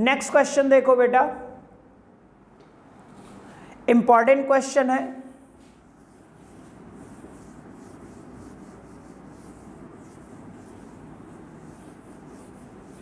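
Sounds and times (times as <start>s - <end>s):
duster rubbing whiteboard: 5.6s - 13.0s.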